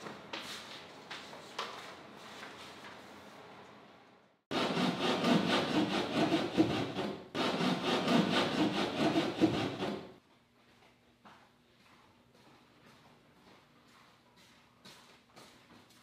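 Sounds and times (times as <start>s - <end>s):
hand sanding wooden hull: 4.5s - 10.2s.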